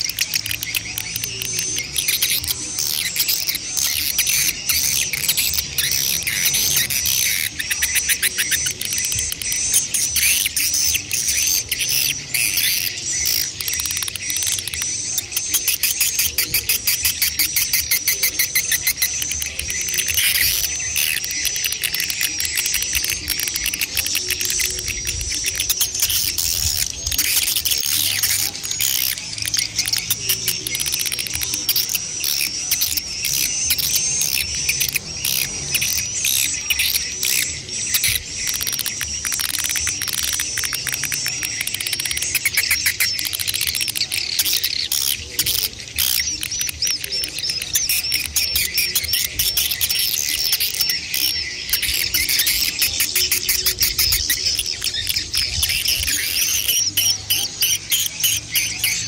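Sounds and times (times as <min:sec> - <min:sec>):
birds twittering: 0:00.0 - 0:59.0
rapid clicking chirps: 0:00.0 - 0:59.0.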